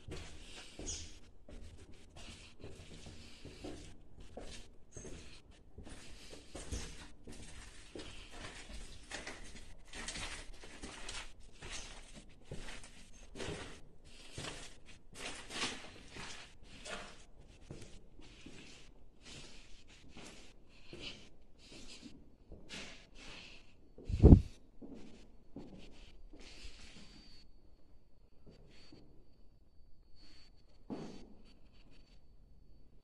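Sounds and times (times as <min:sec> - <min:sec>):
footsteps crunching over debris: 0:05.2 - 0:18.8.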